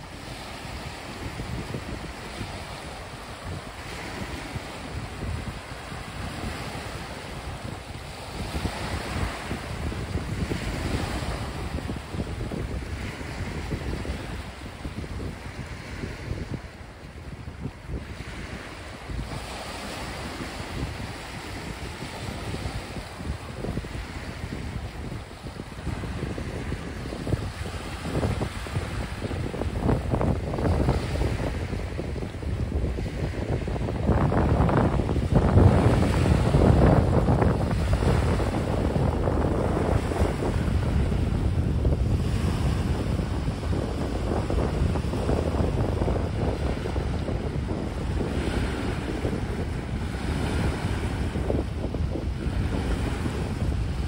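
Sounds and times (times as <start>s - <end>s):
wind buffeting microphone: 0.0s - 54.0s
waves washing over pebbles: 17.9s - 54.0s.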